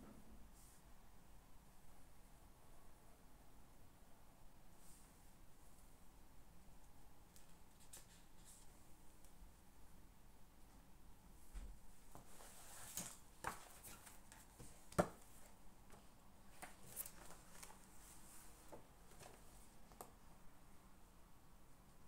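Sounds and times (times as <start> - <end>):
soft rustling: 11.4 - 20.2.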